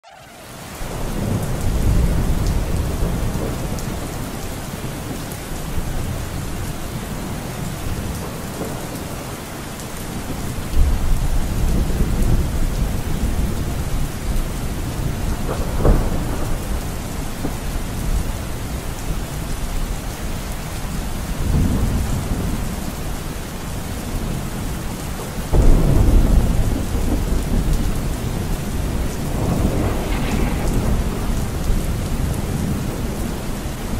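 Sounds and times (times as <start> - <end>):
thunder rolling: 0.0 - 4.4, 10.2 - 18.8, 25.5 - 33.9
steady rain: 0.0 - 33.9.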